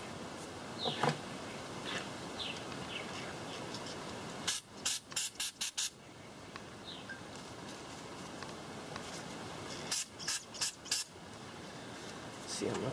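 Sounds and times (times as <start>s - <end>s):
aerosol spray hissing: 4.4s - 6.0s, 9.9s - 11.1s.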